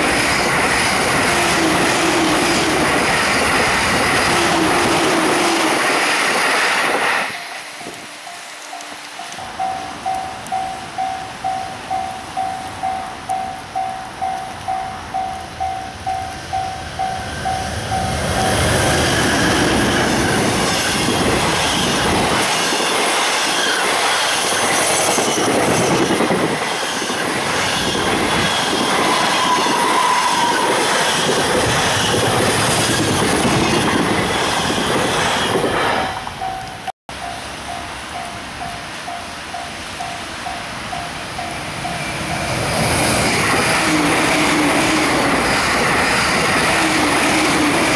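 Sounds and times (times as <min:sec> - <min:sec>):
train wheels rushing on rail: 0:00.0 - 0:47.9.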